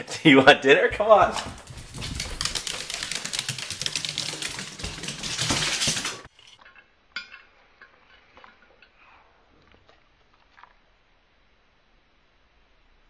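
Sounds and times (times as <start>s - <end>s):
dishes and cutlery clattering: 4.2s - 8.9s.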